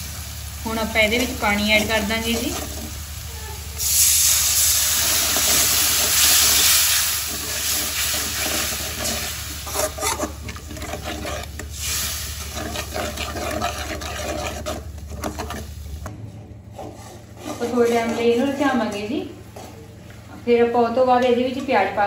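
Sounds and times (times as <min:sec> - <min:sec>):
water sizzling in hot pan: 0:00.0 - 0:10.4, 0:11.0 - 0:14.0
steel ladle scraping a pan: 0:03.8 - 0:15.8, 0:16.7 - 0:18.6.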